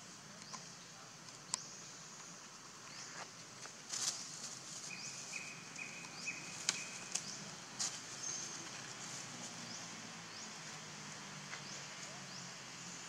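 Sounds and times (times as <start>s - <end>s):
crackling dry leaves and twigs: 2.8s - 9.8s.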